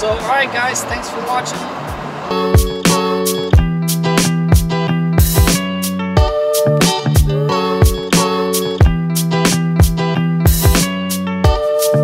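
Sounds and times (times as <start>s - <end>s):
repeated drum hits: 1.6s - 6.4s.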